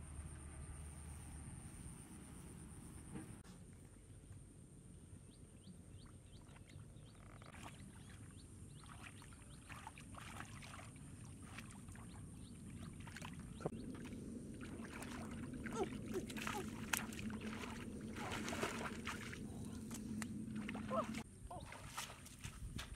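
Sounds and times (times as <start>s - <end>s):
faint low rumble: 0.0s - 22.9s
hands sloshing in muddy water: 7.4s - 22.9s.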